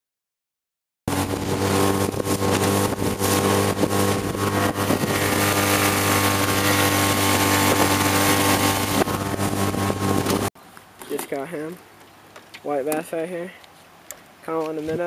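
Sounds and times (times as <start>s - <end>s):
outboard motor running: 1.1s - 10.5s
water rushing and splashing: 1.1s - 14.8s.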